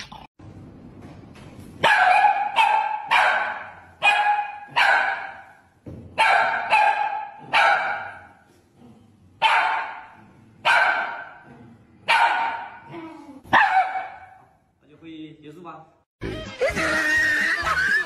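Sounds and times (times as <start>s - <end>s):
small dog barking sharply: 1.8s - 5.4s, 6.2s - 8.2s, 13.5s - 14.4s.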